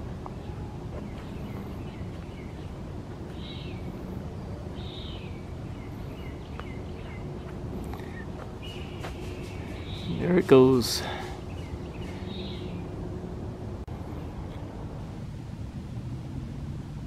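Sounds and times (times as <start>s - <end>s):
birds calling: 0.0s - 13.4s
low background rumble: 0.0s - 17.0s.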